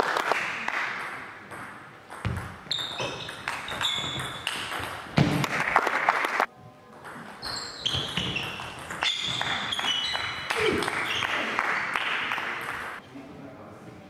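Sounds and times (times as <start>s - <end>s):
shoes squeaking on floor: 2.2s - 5.3s, 7.4s - 11.5s.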